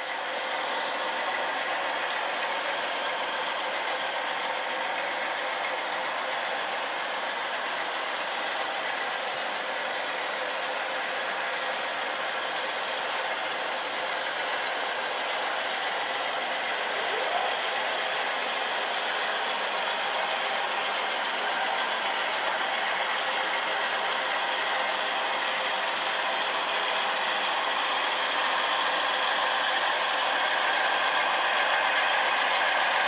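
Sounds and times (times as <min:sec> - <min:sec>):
thin diesel engine sound from speakers: 0:00.0 - 0:33.0.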